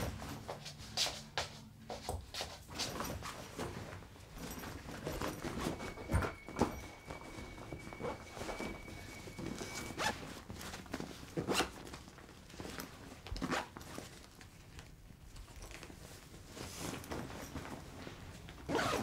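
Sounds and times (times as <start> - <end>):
zipper pulled: 8.0 - 10.4, 11.3 - 11.8, 13.4 - 14.0, 18.7 - 19.0.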